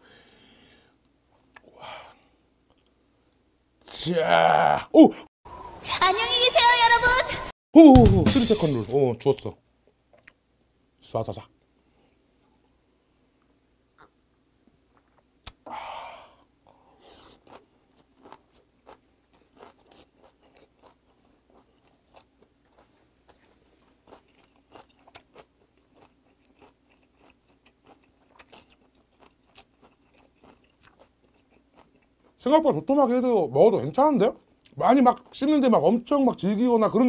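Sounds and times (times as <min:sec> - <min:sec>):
breathy exhale: 0:00.0 - 0:01.0, 0:15.6 - 0:17.3
wet crunchy chewing: 0:17.0 - 0:32.4.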